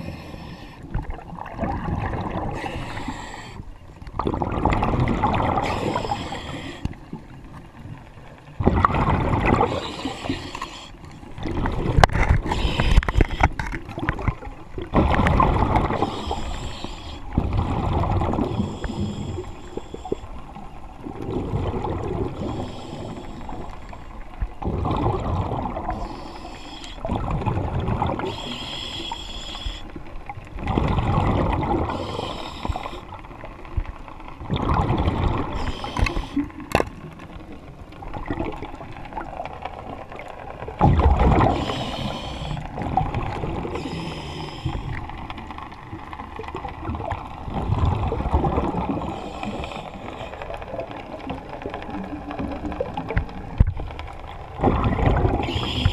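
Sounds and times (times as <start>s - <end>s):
regulator inhale hiss: 0.0s - 0.9s, 2.6s - 3.7s, 5.6s - 7.0s, 9.7s - 11.2s, 12.5s - 13.6s, 15.9s - 17.4s, 18.5s - 20.4s, 22.4s - 24.1s, 25.9s - 27.1s, 28.2s - 30.0s, 31.9s - 33.2s, 35.6s - 36.5s, 41.5s - 42.7s, 43.7s - 45.0s, 49.0s - 50.5s, 55.4s - 55.9s
exhaled bubbles rumbling: 0.0s - 28.7s, 29.8s - 55.9s.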